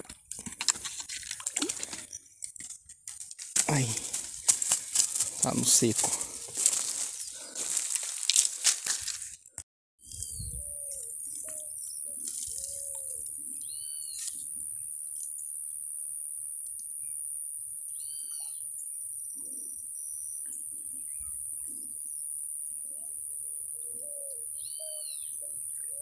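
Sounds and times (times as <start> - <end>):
birds calling: 3.7 - 8.5, 10.1 - 14.4, 22.8 - 26.0.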